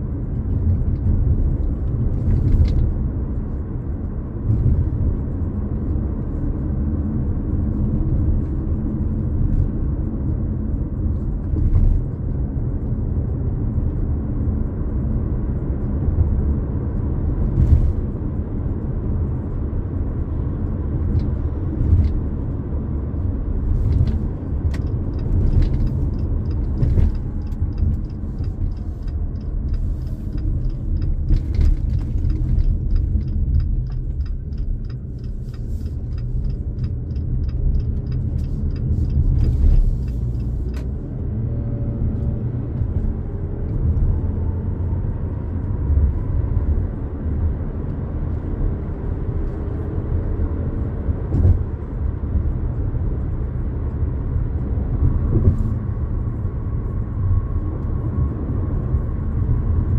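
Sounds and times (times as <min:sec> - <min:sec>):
car road and engine rumble: 0:00.0 - 0:59.9
light regular ticking: 0:24.6 - 0:41.0.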